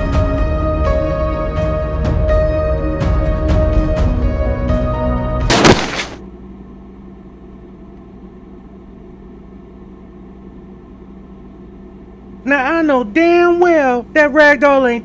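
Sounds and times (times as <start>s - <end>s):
loud crash of body landing: 5.5s - 6.2s
steady low hum: 5.5s - 15.0s.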